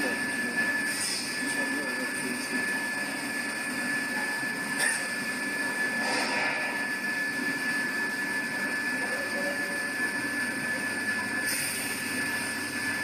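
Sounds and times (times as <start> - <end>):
welding machine hum and whine: 0.0 - 13.0.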